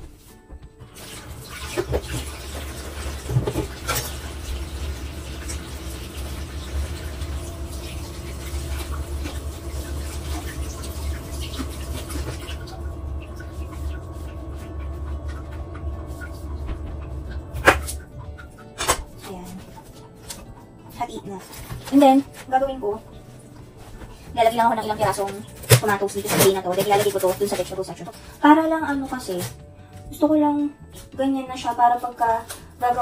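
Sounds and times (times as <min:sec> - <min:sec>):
groceries and containers handled: 0:00.0 - 0:33.0
steady low hum: 0:03.3 - 0:26.0.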